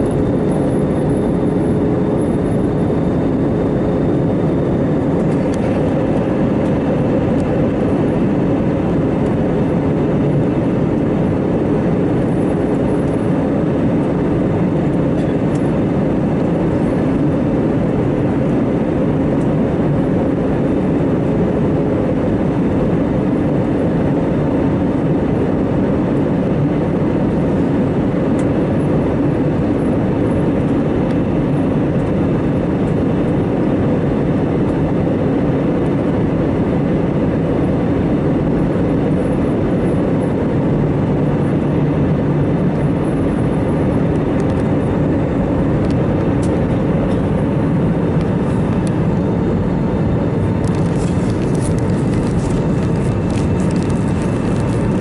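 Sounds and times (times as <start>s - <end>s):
jet engine cabin drone: 0.0s - 55.0s.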